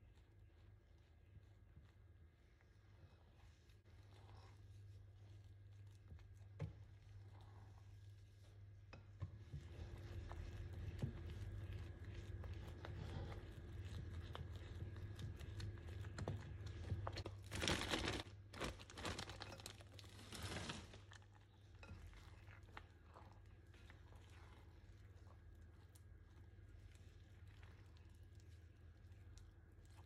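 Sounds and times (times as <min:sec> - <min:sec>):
spatula scraping through batter: 0:03.2 - 0:17.2
plastic bag crinkling: 0:17.2 - 0:21.2.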